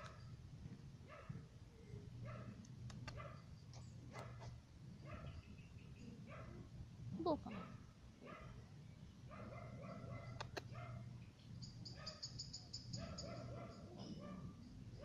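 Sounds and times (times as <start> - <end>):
dog barking faintly: 7.4 - 8.6.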